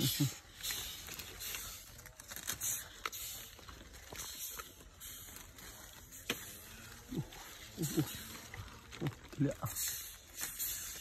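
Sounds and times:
leafy branches rustling: 0.0s - 11.0s.

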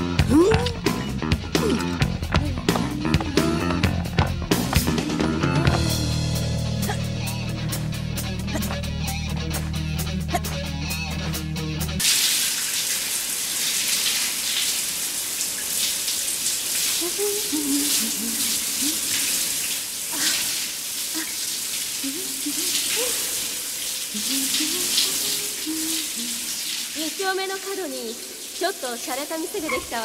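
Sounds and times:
shower water splashing on tiles: 12.0s - 30.0s.

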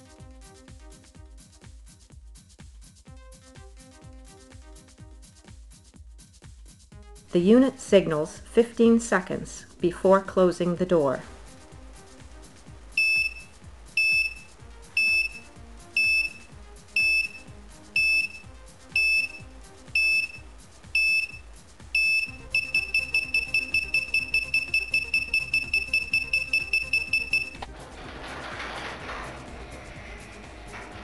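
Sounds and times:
high warning beeps: 13.0s - 27.6s.

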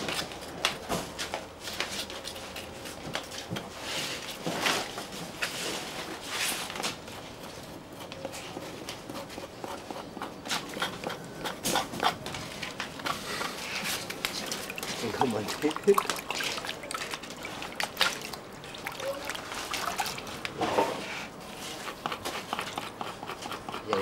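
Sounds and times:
knife scraping on cutting board: 6.3s - 14.2s, 20.6s - 24.0s.

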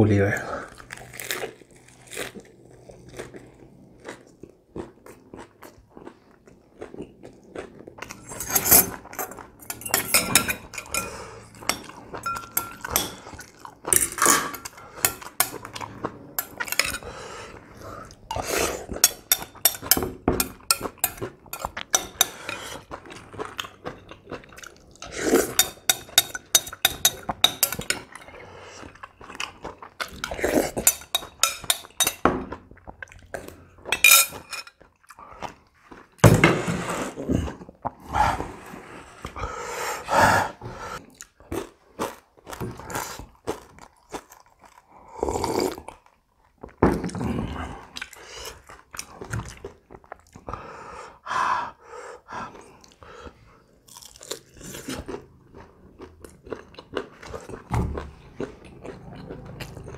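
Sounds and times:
chewing and crunching food: 0.4s - 34.0s, 34.7s - 36.2s, 40.9s - 50.8s, 52.2s - 59.9s
spoon clinking against glass bowl: 8.4s - 13.2s, 19.0s - 22.6s, 25.5s - 28.1s, 30.8s - 32.3s.

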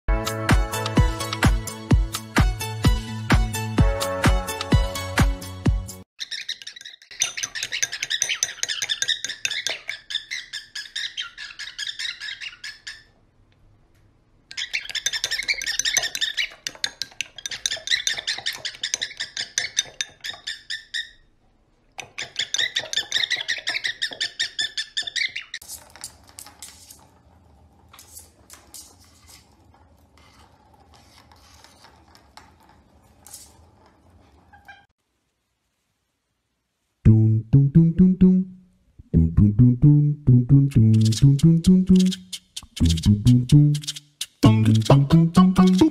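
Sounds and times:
cockatiel chattering and whistling: 6.2s - 13.1s, 14.5s - 21.3s, 22.0s - 25.6s, 41.9s - 45.9s.

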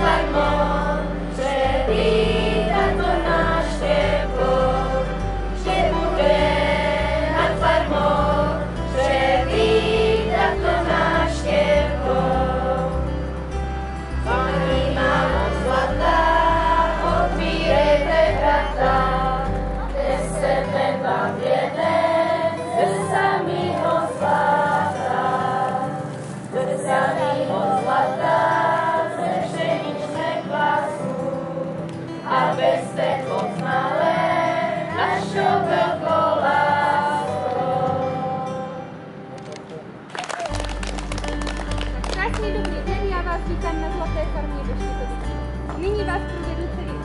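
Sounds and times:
low bass keyboard notes: 0.0s - 22.3s, 40.6s - 47.0s
girls' choir singing: 0.0s - 39.0s.

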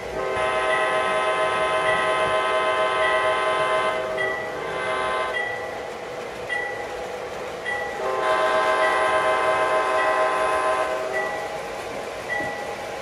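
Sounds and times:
model train horn: 0.2s - 5.4s, 8.0s - 11.2s
locomotive bell ringing: 0.6s - 5.9s, 6.5s - 11.6s, 12.3s - 12.9s.

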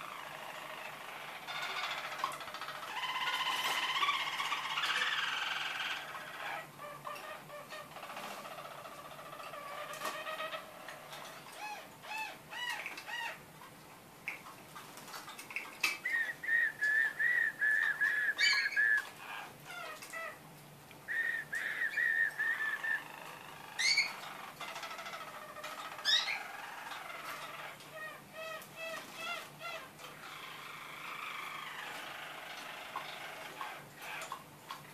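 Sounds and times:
canaries singing: 0.0s - 34.9s
upward-sliding whistles: 21.1s - 23.0s.

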